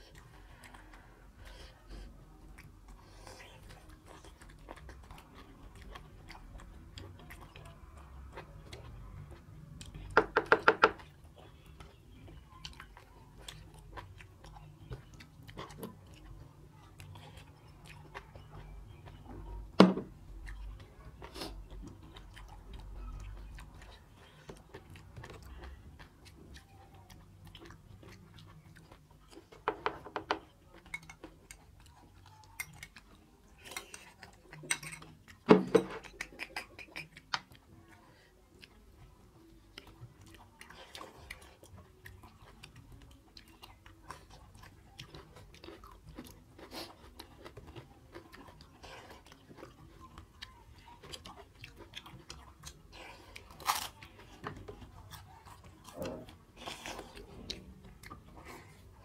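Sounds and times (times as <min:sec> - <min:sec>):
people chewing food: 0:00.0 - 0:59.0
wet mouth clicks: 0:36.0 - 0:37.5.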